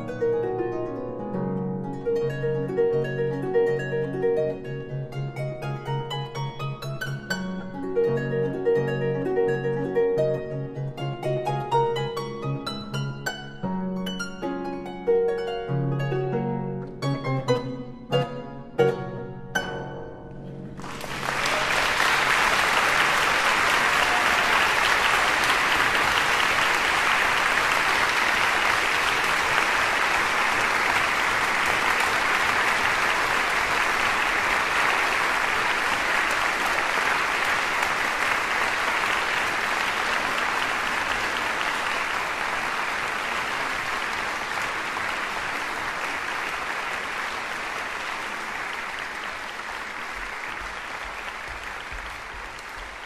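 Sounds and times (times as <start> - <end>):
audience applauding: 20.7 - 53.0.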